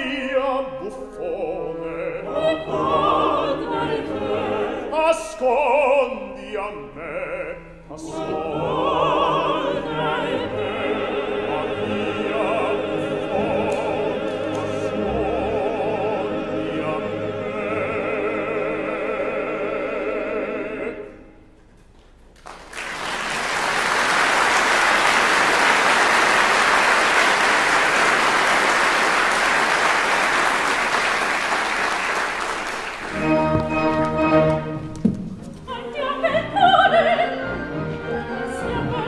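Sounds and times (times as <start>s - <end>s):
operatic singing: 0.0s - 21.4s, 26.1s - 39.0s
audience applauding: 22.4s - 34.6s
orchestra playing: 32.7s - 39.0s.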